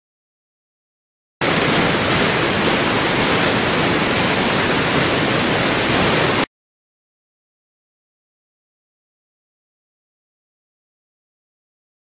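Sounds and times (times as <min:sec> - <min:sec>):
waterfall rushing: 0:01.4 - 0:06.5.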